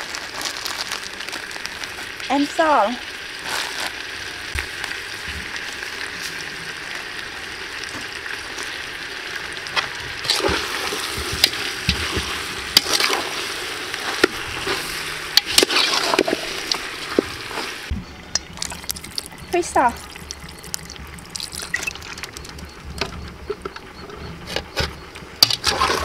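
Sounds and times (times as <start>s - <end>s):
granules pouring hiss: 0.0s - 6.6s
metal utensils scraping a pot: 14.2s - 16.8s.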